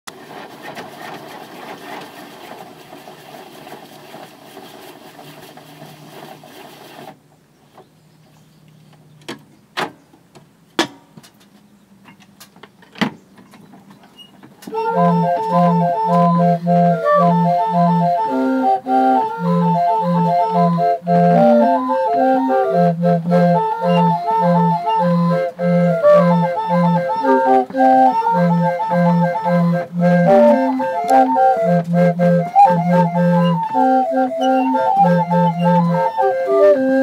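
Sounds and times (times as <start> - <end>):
street organ playing a tune: 13.3 - 37.0.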